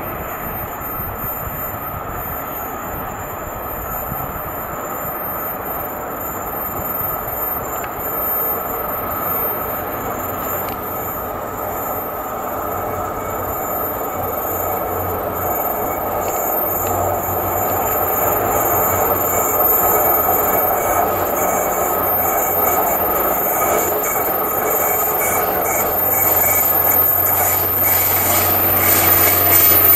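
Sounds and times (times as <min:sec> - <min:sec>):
train wheels rumbling on rails: 0:09.9 - 0:29.9.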